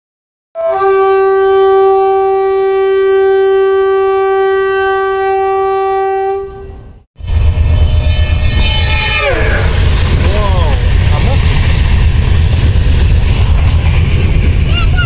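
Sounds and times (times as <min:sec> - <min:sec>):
long steady horn note: 0:00.6 - 0:09.8
moving train rumble: 0:00.6 - 0:15.0.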